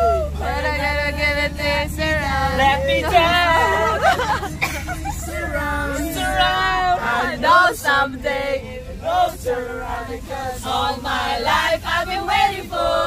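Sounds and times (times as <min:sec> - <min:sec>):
low road rumble: 0:00.0 - 0:13.0
group of people singing: 0:05.1 - 0:13.0.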